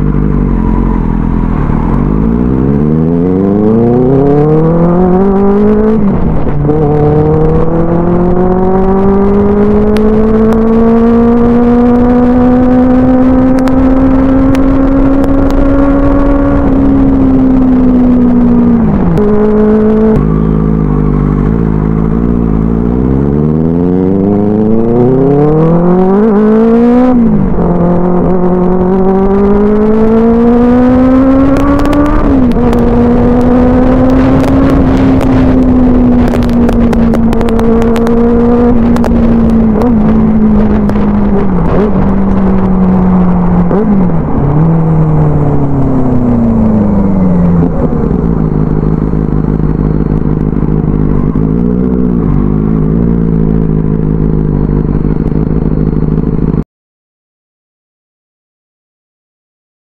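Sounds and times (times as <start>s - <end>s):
motorcycle engine accelerating: 0.0s - 56.6s.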